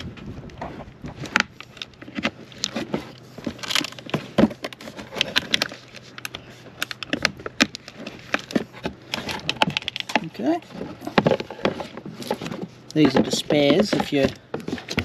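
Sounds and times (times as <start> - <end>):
plastic batteries clicking and knocking: 12.9 - 15.0.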